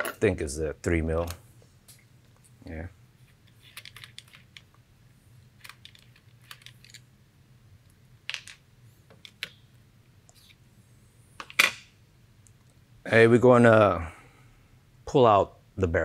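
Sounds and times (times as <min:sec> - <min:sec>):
parts set down on table: 0:11.4 - 0:11.9.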